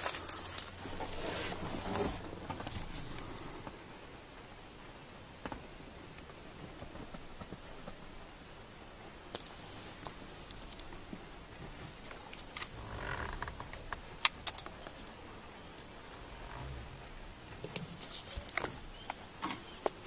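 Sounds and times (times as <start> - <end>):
sharp clicks: 13.4 - 15.0
brief rustle: 17.6 - 19.6.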